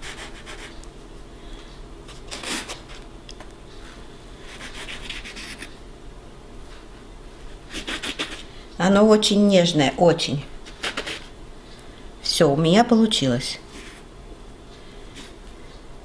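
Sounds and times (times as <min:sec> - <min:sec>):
scraper scraping dough on countertop: 0:04.5 - 0:05.7, 0:07.7 - 0:08.5, 0:10.7 - 0:11.3.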